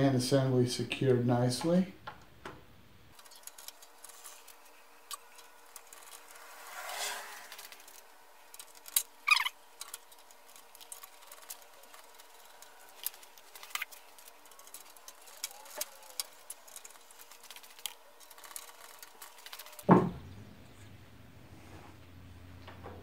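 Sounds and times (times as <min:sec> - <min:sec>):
small parts rattling in cup: 0:03.1 - 0:06.5, 0:07.5 - 0:19.9.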